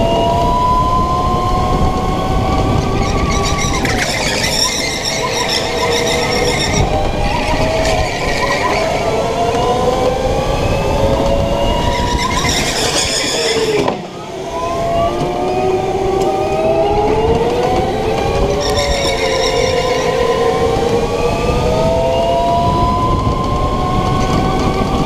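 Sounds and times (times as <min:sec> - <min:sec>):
wind and tyre rumble: 0:00.0 - 0:25.0.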